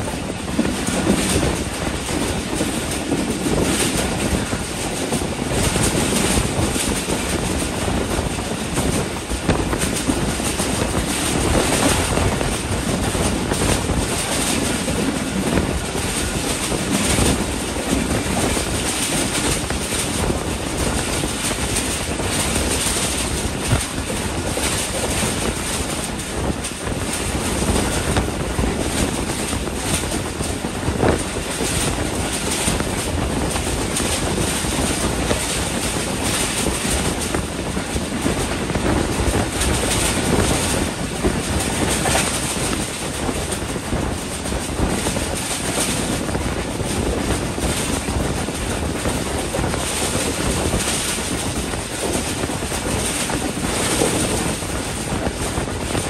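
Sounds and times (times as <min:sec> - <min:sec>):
rush of wind: 0:00.0 - 0:56.0
train wheels clattering over rails: 0:00.0 - 0:56.0.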